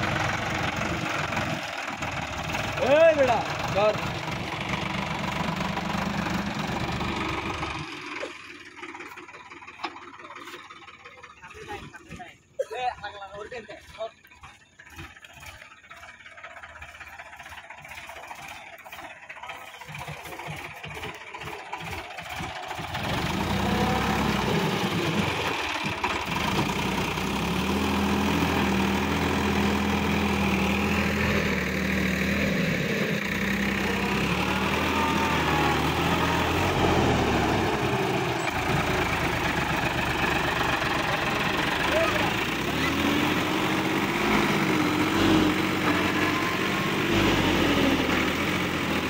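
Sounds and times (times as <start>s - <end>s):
tractor diesel engine knocking: 0.0s - 49.0s.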